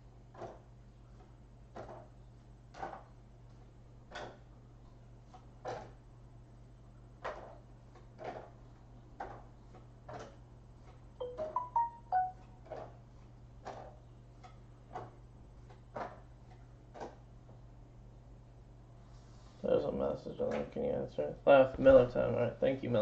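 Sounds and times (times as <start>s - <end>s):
short high beeping notes: 11.2s - 12.4s.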